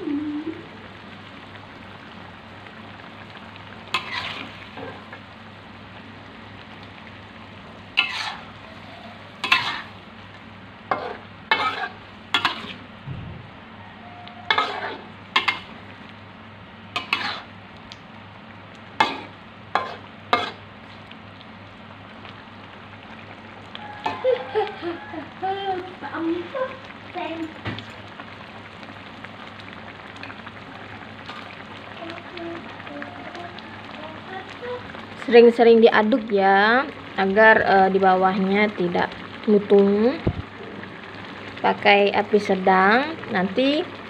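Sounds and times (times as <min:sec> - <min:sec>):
steady sizzle: 0:00.0 - 0:44.0
metal spatula scraping wok: 0:03.9 - 0:05.1, 0:08.0 - 0:10.0, 0:10.9 - 0:12.8, 0:14.2 - 0:15.7, 0:17.0 - 0:17.5, 0:19.0 - 0:20.6.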